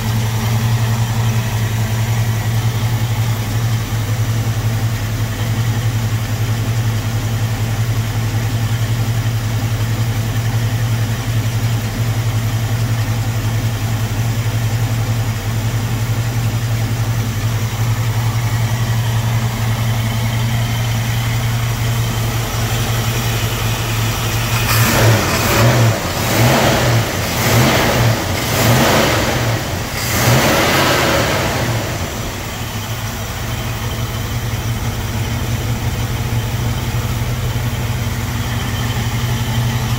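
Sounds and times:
car engine idling and revving: 0.0s - 39.9s.

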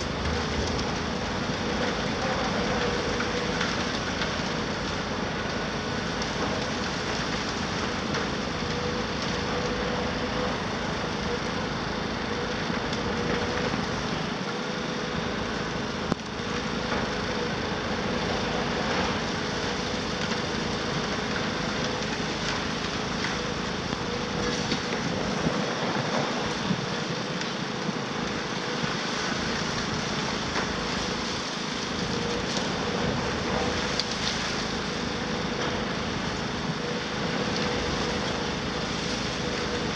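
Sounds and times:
excavator engine and hydraulic whine: 0.0s - 39.9s.

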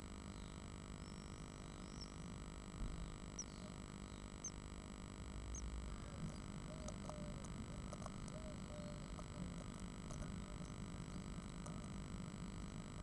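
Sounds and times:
steady electrical hum: 0.0s - 13.0s
faint high bird peeps: 0.3s - 2.2s, 3.0s - 4.6s, 5.5s - 9.6s.

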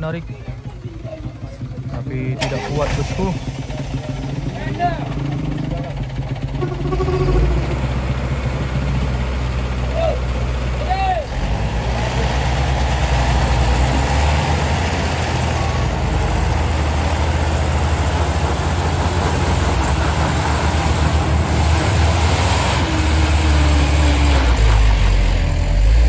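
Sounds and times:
diesel truck engine under load: 0.0s - 26.0s.

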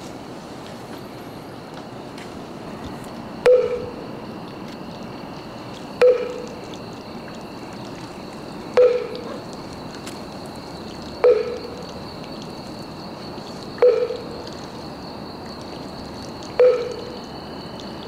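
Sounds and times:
steady hiss: 0.0s - 18.0s
faint high steady tones: 3.3s - 4.6s, 5.3s - 18.0s
hollow knocks with ringing tone: 6.0s - 6.5s, 8.8s - 9.3s, 13.8s - 14.2s, 16.6s - 17.1s.

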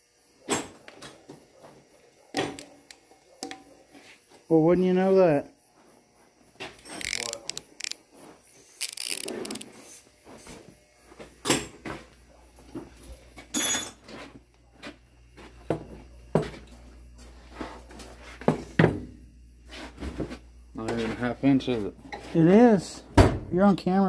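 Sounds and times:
hand tools and metal parts clanking: 13.0s - 14.3s.

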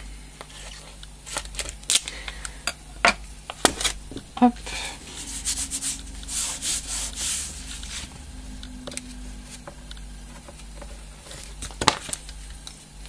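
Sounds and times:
hands rubbing tape on cardboard: 5.0s - 8.2s.

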